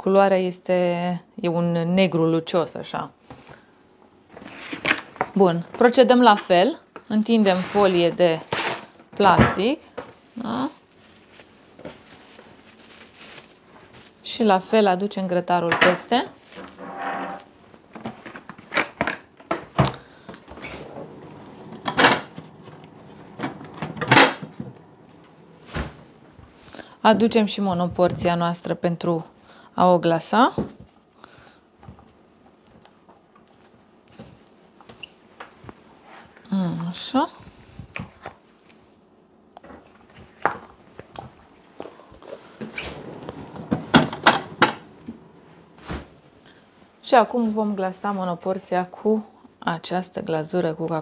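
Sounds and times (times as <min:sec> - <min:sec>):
kitchen items knocking and clicking: 0:18.0 - 0:25.0, 0:42.6 - 0:45.3
scraping bumps: 0:20.5 - 0:26.5, 0:42.4 - 0:46.2.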